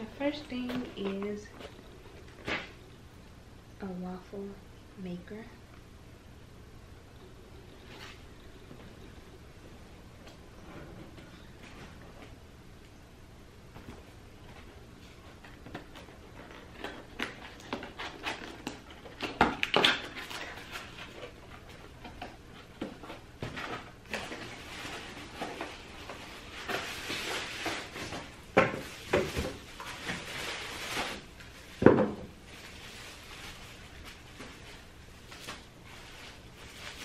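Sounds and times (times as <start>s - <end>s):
plastic crinkling: 14.4s - 37.0s.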